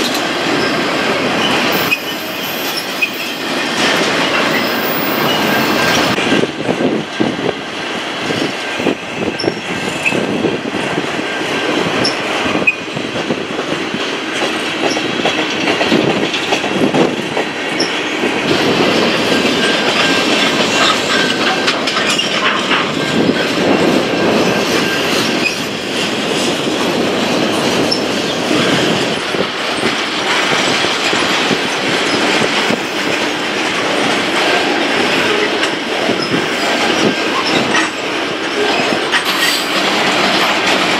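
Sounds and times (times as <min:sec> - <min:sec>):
train wheels rumbling on rail: 0:00.0 - 0:40.9
wheel squeal: 0:01.4 - 0:03.4
clicking over rail joints: 0:11.6 - 0:40.9.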